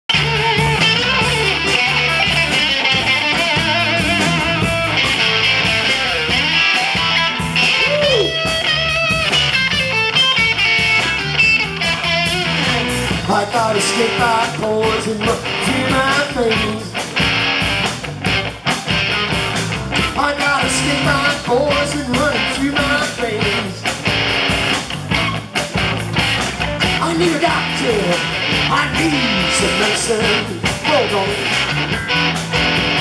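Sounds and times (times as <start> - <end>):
drums: 0.0 - 33.0
electric guitars: 0.1 - 33.0.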